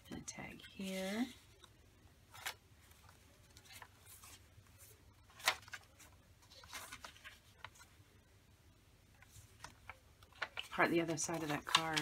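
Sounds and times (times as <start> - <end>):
paper pages rustling: 2.3 - 8.0, 9.2 - 12.0.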